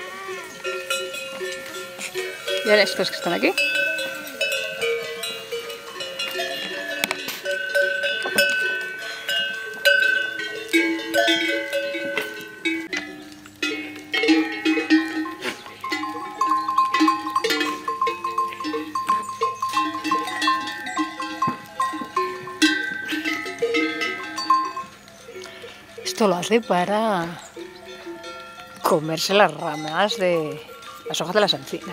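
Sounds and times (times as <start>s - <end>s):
goat bells clanking: 0.0s - 31.9s.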